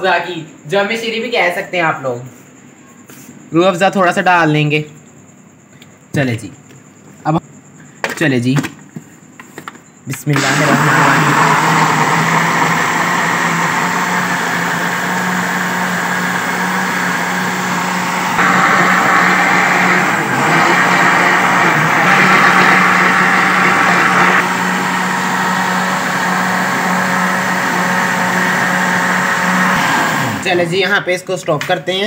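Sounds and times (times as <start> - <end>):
blender running: 10.4 - 30.7.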